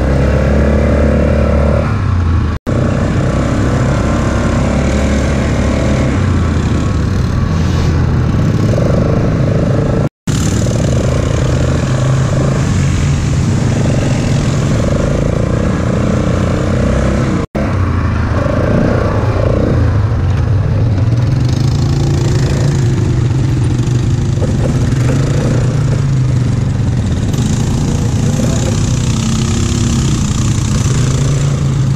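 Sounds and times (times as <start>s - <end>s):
quad bike engine running: 8.2s - 31.9s.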